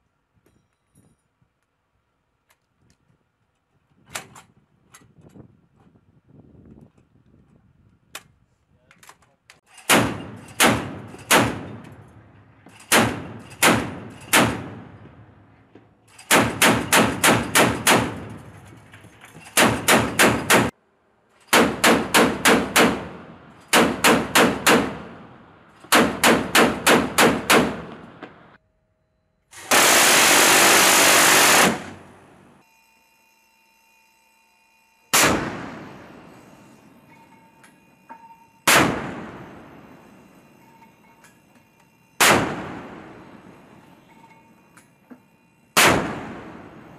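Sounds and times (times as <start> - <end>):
machine gun firing: 9.9 - 11.9, 12.9 - 15.4, 16.2 - 18.5, 19.6 - 20.7, 21.5 - 28.4, 29.6 - 32.2, 35.1 - 36.4, 38.7 - 39.7, 42.2 - 43.6, 45.8 - 46.9
heavy deck gun shot: 35.2 - 35.9.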